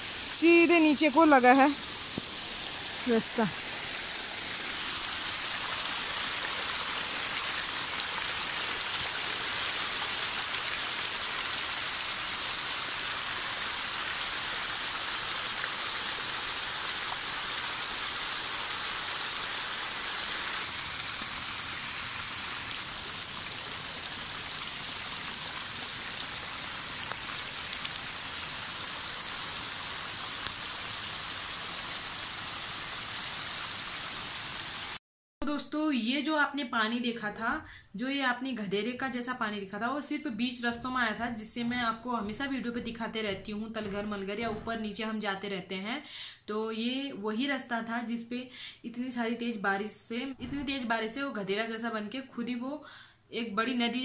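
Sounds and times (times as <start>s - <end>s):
heavy rain: 0.0s - 35.0s
water rushing down hillside: 0.0s - 35.0s.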